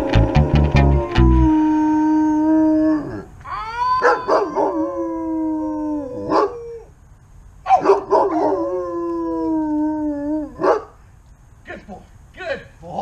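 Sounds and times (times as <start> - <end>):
dog howling: 0.0 - 6.9, 7.8 - 10.8.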